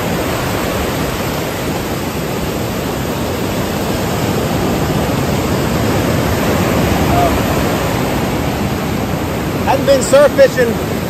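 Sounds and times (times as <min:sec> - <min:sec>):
ocean surf breaking: 0:00.0 - 0:11.0.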